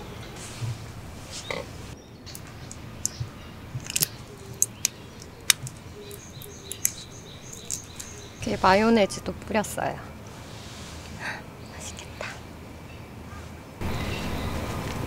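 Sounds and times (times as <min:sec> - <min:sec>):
sauce bottles squeezing: 0:03.8 - 0:08.4.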